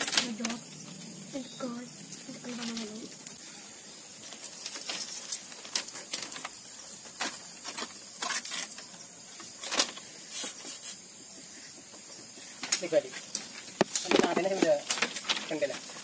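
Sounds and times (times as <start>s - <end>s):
bamboo strips clicking and scraping: 0.0s - 0.7s, 4.2s - 11.1s, 12.5s - 16.0s.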